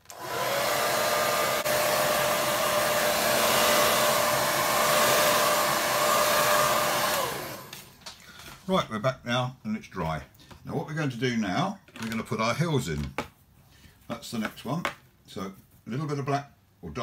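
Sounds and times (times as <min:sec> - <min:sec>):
electric dryer whining: 0:00.0 - 0:08.2.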